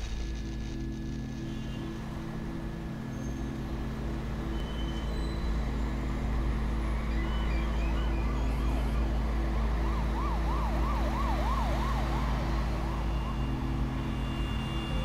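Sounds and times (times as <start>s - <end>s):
low rumble with hum: 0.0s - 3.9s.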